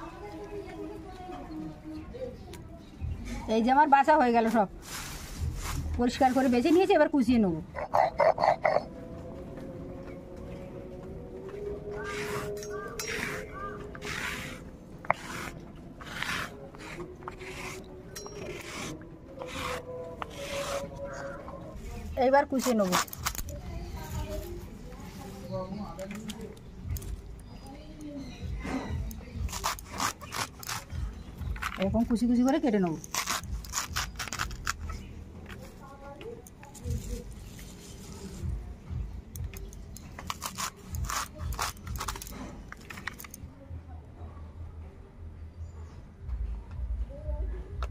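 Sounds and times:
crisp cuts through leafy stems: 11.9 - 21.1, 22.4 - 25.4, 28.6 - 35.8, 39.4 - 43.4
paste scraped off stone slab: 12.0 - 21.2.

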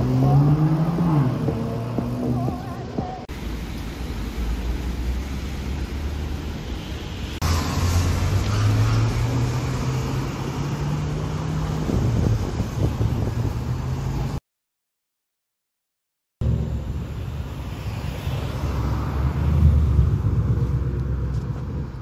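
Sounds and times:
car engine revving: 0.0 - 2.6
low street rumble: 0.0 - 14.4, 16.4 - 22.0.

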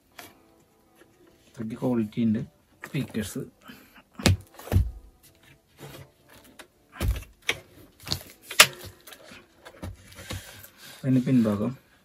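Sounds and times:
knocks and clunks of handling: 4.2 - 10.8.

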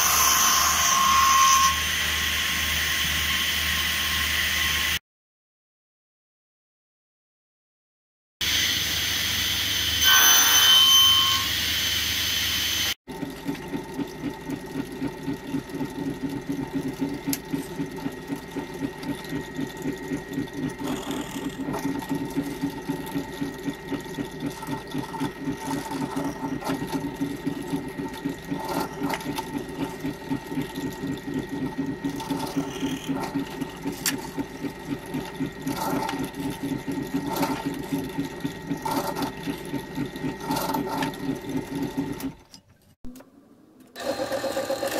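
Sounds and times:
loud power tool noise: 0.0 - 5.0, 8.4 - 13.0, 44.0 - 44.9
drill boring into wood: 20.6 - 22.4, 31.9 - 34.3, 44.0 - 44.9.

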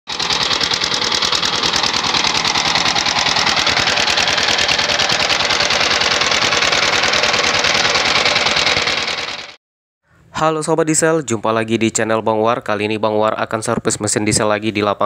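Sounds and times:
diesel engine knocking: 0.1 - 9.6.

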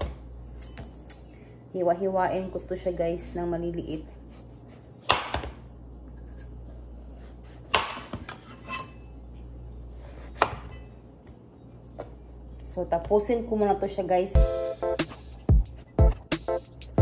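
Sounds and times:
knife chopping on cutting board: 4.3 - 5.6, 7.1 - 8.4, 10.0 - 10.8.

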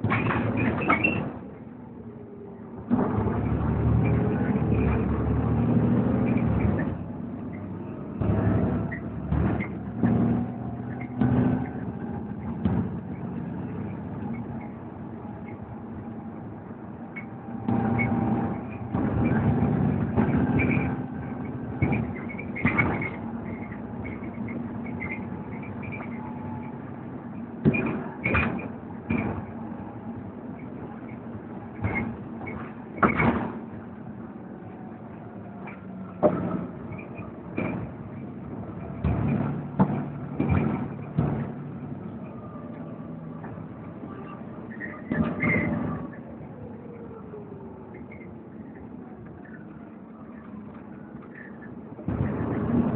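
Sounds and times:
bus diesel engine under load: 0.0 - 52.9
knocks and rattles: 8.1 - 14.7, 38.8 - 41.8.

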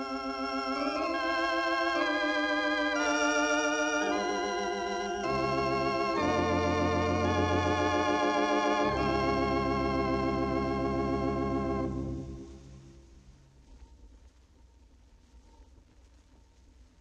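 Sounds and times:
organ playing sustained chords: 0.0 - 13.2.

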